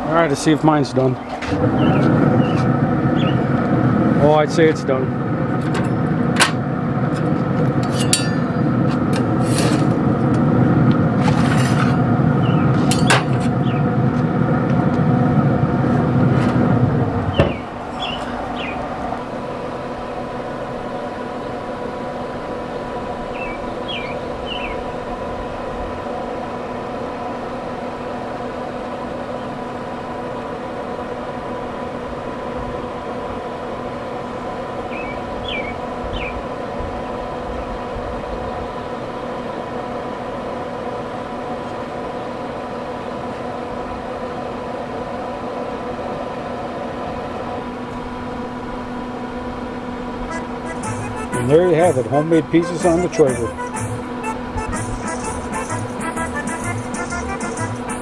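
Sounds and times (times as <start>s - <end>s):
low rushing noise: 0.0s - 28.5s
mechanical hum: 0.0s - 58.0s.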